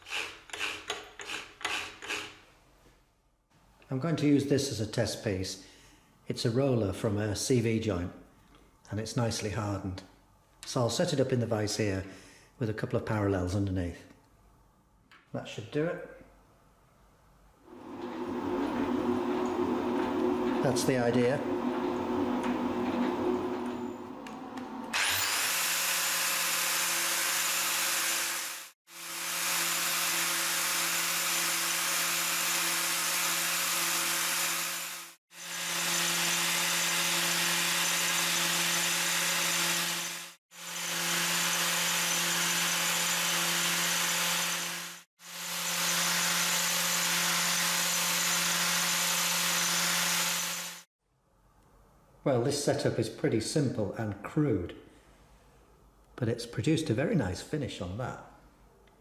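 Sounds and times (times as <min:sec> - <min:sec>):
angle grinder grinding steel: 0:00.0 - 0:02.4, 0:17.7 - 0:50.9.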